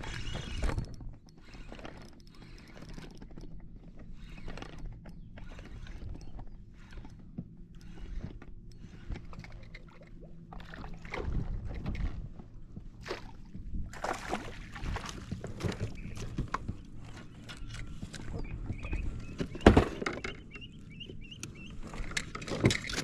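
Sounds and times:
boat motor hum: 0.0 - 23.0
water splashing: 13.0 - 16.2.

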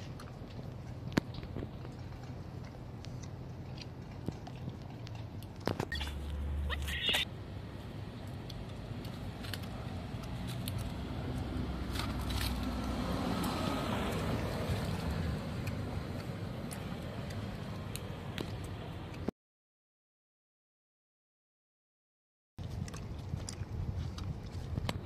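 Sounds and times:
distant road traffic rumble: 0.0 - 19.3.

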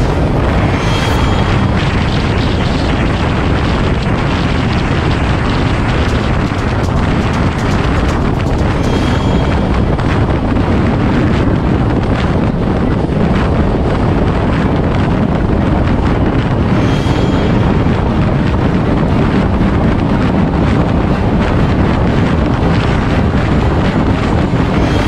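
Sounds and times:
road noise: 0.0 - 25.0
wind buffeting microphone: 0.0 - 25.0
motorcycle engine running: 1.5 - 11.2.

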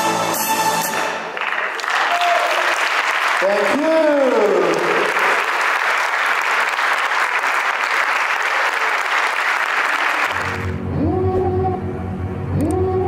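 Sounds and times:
audience applauding: 1.0 - 10.8.

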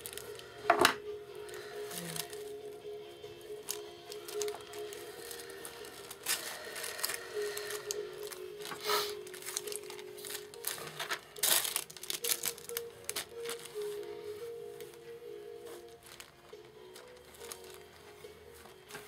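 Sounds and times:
quiet background music: 0.0 - 19.0
cloth book rustling: 1.5 - 19.0.

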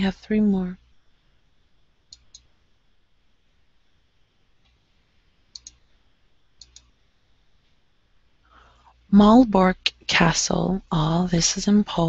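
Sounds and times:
computer mouse clicks: 2.1 - 2.5, 5.5 - 6.0, 6.6 - 7.0.

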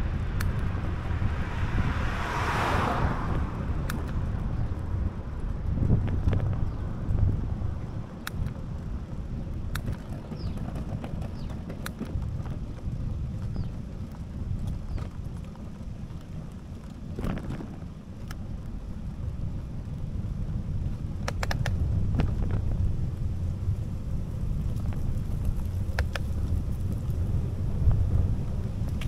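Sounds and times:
wind on microphone: 0.0 - 16.0, 17.1 - 29.0
rumble of riding on asphalt: 0.0 - 29.0
sharp clicks and knocks: 9.7 - 12.6, 21.2 - 21.8.

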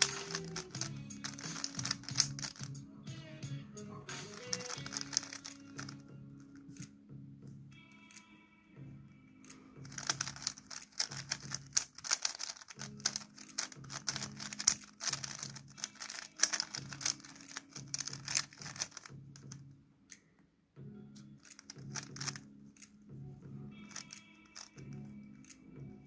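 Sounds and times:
puzzle cube clicking rattle: 0.0 - 2.8, 4.1 - 6.1, 9.8 - 19.6, 21.4 - 23.0, 23.8 - 25.6
background music: 0.0 - 26.0.

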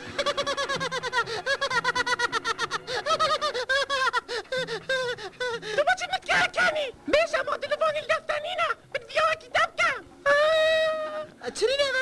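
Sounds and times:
cartoon boy laughing: 0.1 - 6.9.

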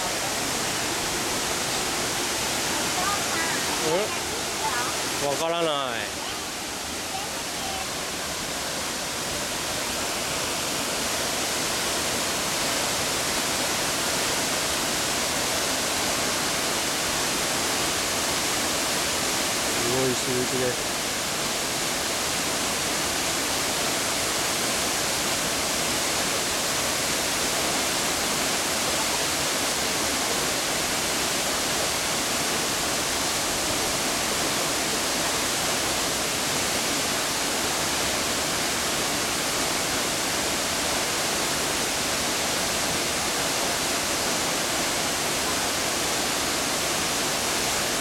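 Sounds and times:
waterfall rushing into pool: 0.0 - 48.0.

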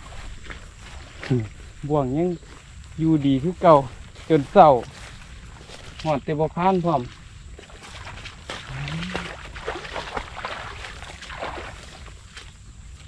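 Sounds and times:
dry grass rustling and crackling: 0.0 - 13.0
man humming low: 8.7 - 9.4.

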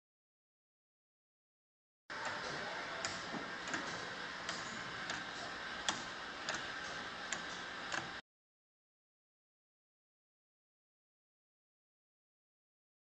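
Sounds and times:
sculpture mechanism clicking: 2.1 - 8.2.

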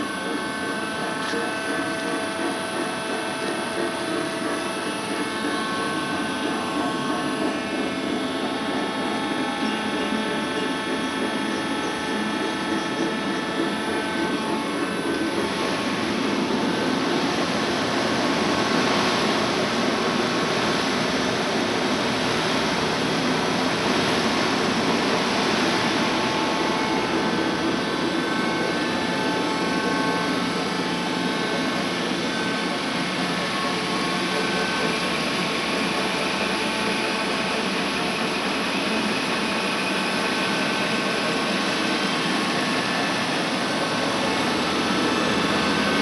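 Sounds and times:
centrifuge machine hum: 0.0 - 46.0
machine whines: 0.0 - 46.0.

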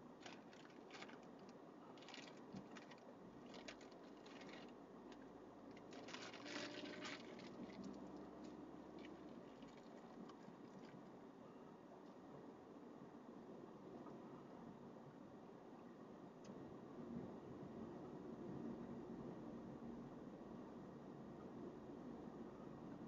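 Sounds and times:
light ticks and crackles: 0.0 - 11.1
road noise inside a car: 0.0 - 23.0.

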